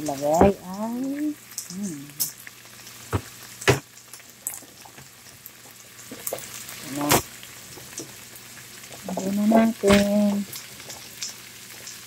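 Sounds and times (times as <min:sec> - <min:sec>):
food sizzling in a frying pan: 0:00.0 - 0:12.0
sharp knocks: 0:03.1 - 0:03.8.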